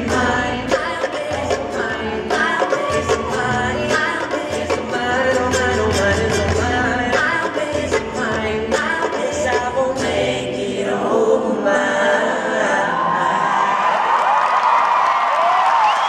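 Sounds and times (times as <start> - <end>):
acoustic guitar: 0.0 - 10.8
ukulele: 0.0 - 10.8
upright bass: 0.0 - 10.8
voices singing together: 0.0 - 14.2.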